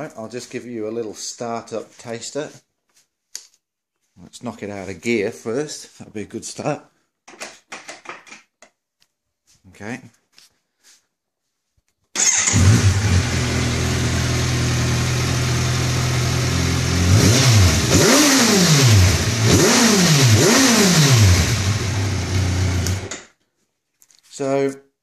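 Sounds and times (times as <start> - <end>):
motorcycle engine idling and revving: 12.2 - 23.1.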